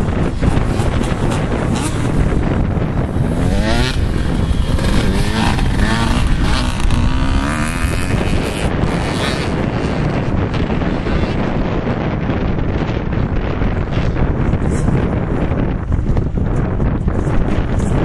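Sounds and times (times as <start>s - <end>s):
wind buffeting microphone: 0.0s - 18.0s
dirt bike engine revving: 0.1s - 11.8s.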